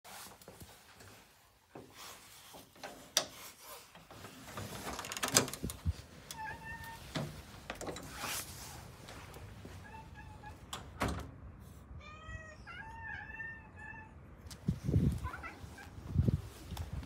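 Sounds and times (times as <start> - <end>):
door lock clicking and knocking: 4.9 - 5.8
cat meowing: 9.8 - 10.7, 12.0 - 14.2, 15.2 - 16.0.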